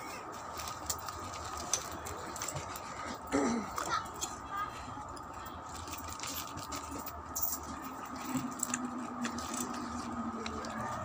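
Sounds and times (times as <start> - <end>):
steady background hum: 0.0 - 11.0
plastic bag crinkling: 0.4 - 3.0.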